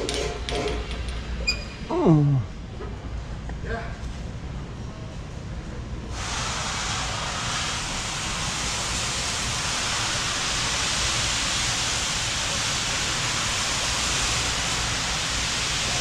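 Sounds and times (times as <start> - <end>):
steady hiss: 6.1 - 16.0.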